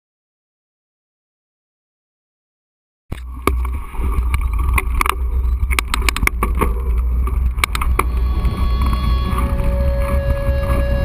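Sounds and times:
wind rumble on microphone: 3.3 - 11.0
bike rattling and knocking: 3.5 - 11.0.

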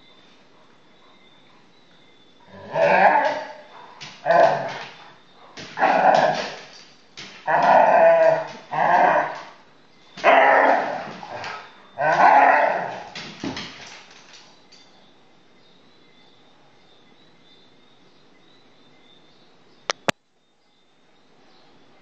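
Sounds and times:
puppies barking and growling: 2.4 - 14.1.

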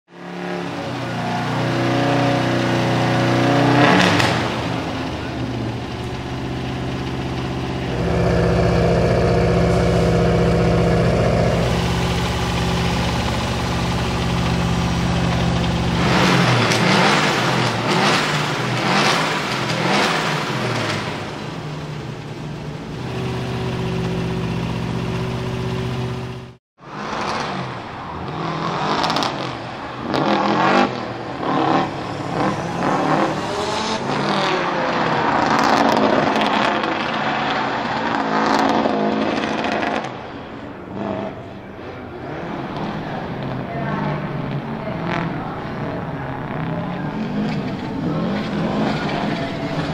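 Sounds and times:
car engine idling and revving: 0.1 - 49.9
car engine revving while driving: 0.2 - 5.1, 5.8 - 21.4, 23.0 - 27.6, 28.3 - 40.1.

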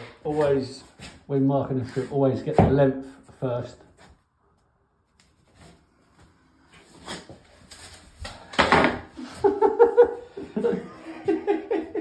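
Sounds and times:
floor board scraping and knocking: 8.5 - 9.4.

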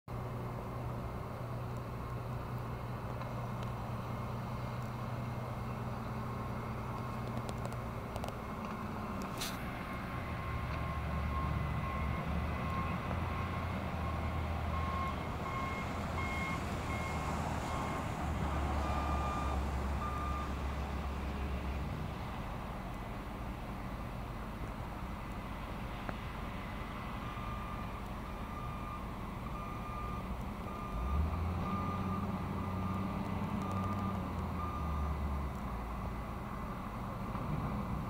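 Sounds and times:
truck back-up alarm beeping: 9.8 - 21.0, 27.2 - 35.8.

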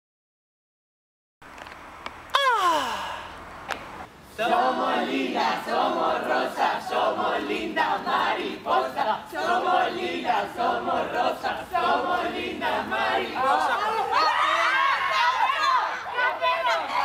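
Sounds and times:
young people shouting and shrieking: 2.4 - 3.3, 13.4 - 17.0.

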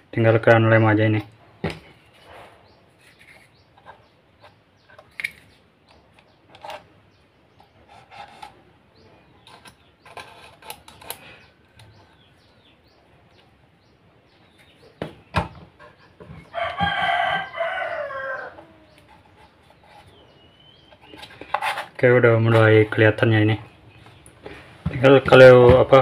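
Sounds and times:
rooster crowing: 16.5 - 19.0.

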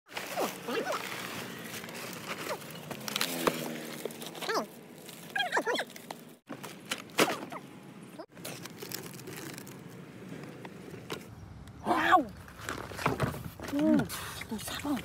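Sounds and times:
rustling and handling noise: 0.1 - 7.2.

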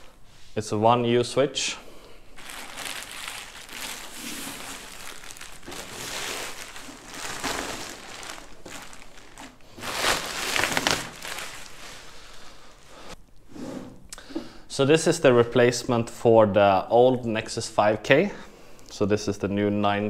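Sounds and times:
plastic bag crinkling: 2.3 - 13.2.

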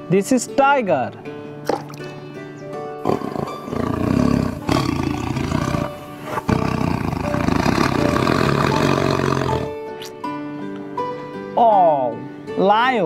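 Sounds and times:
background music: 0.0 - 13.0
tiger roaring: 3.0 - 9.8.

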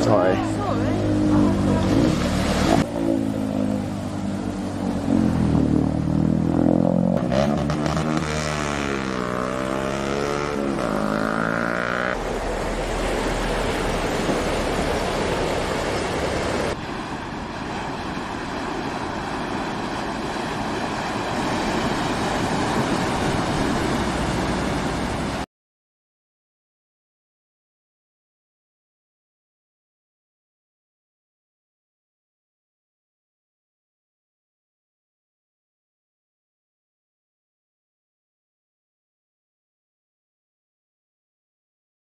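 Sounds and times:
cars splashing through floodwater: 0.0 - 6.5, 7.2 - 25.5
motorcycle engines revving: 0.0 - 16.8.

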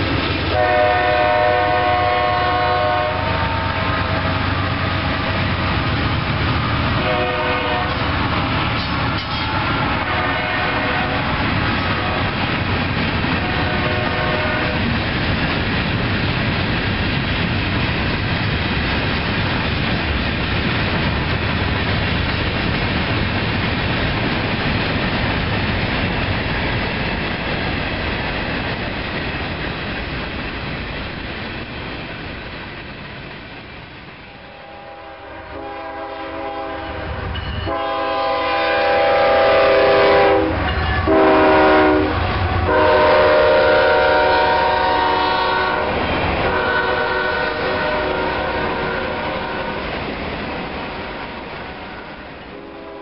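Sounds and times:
freight cars rumbling on rails: 0.0 - 53.0
locomotive air horn blasts: 0.5 - 4.4, 7.0 - 8.1, 9.2 - 12.4, 13.4 - 14.9, 34.4 - 49.8, 51.8 - 53.0.

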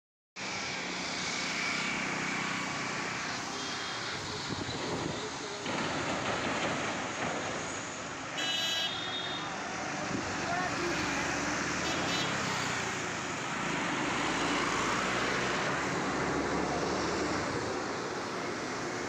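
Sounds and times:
roadside traffic noise: 0.4 - 19.0
vehicle horn tooting: 8.4 - 9.5.

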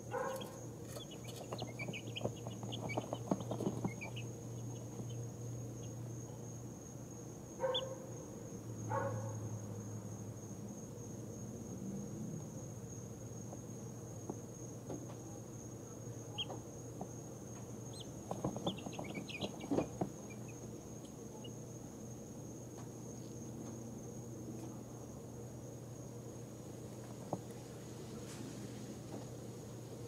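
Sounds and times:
light rustling: 0.1 - 5.2, 16.4 - 20.6
chicks peeping: 0.1 - 6.0, 16.2 - 21.6.

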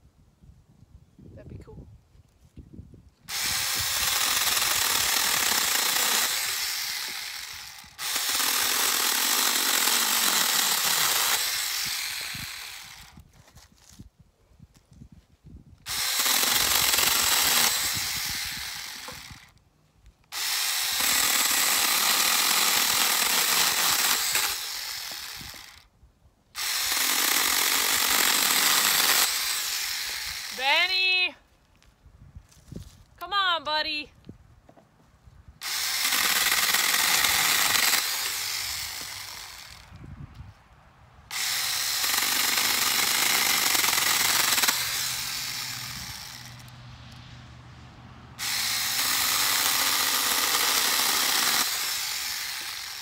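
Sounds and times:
small chainsaw cutting branches: 3.3 - 13.7, 15.8 - 19.6, 20.3 - 25.9, 26.6 - 31.2, 35.6 - 40.1, 41.3 - 46.8, 48.4 - 53.0.

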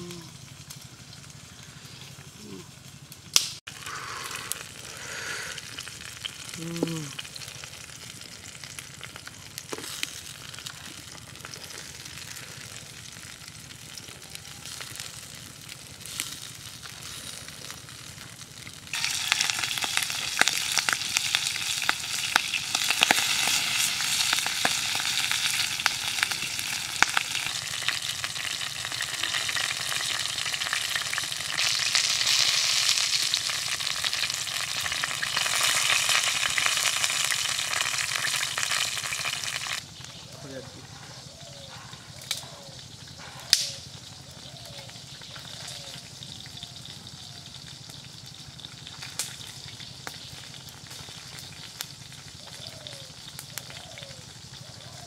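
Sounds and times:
food sizzling in oily pan: 0.0 - 40.6, 42.2 - 55.0
sharp popping oil: 18.4 - 40.2.

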